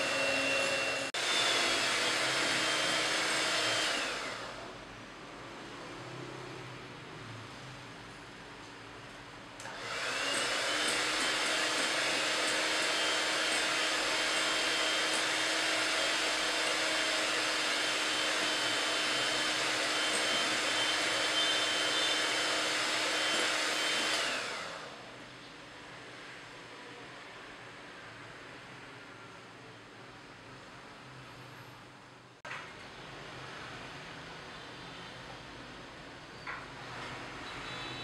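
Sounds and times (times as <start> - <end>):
electric hand mixer whining: 0.0 - 4.7, 9.6 - 25.1.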